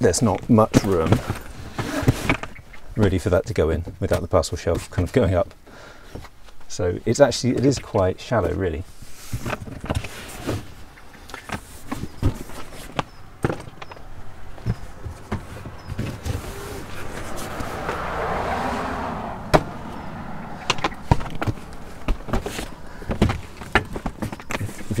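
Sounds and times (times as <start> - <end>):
luggage scraping slide: 1.1 - 2.5, 11.4 - 18.1
luggage knocks and bumps: 11.9 - 17.4, 20.6 - 25.0.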